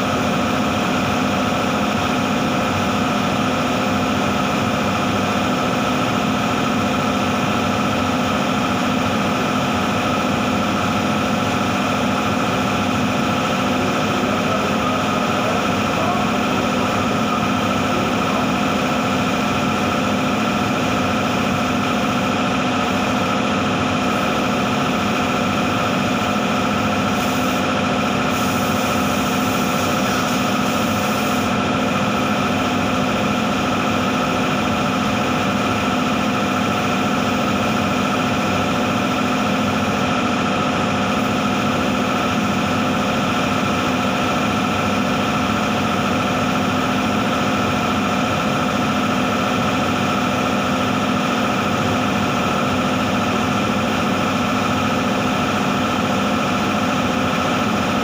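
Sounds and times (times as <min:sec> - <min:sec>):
spray gun hiss: 0:27.1 - 0:27.7, 0:28.3 - 0:31.6.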